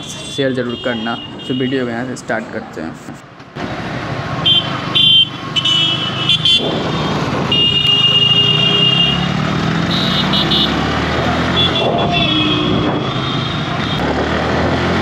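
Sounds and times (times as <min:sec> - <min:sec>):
vehicle horn honking: 0:04.5 - 0:06.8, 0:07.5 - 0:09.3, 0:09.9 - 0:10.8, 0:11.5 - 0:14.0.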